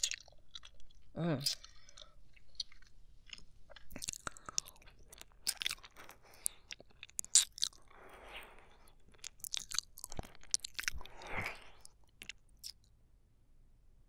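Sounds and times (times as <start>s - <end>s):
wet tongue clicks and smacks: 0.0s - 8.0s, 8.6s - 12.9s
breathy slurps: 4.0s - 12.0s.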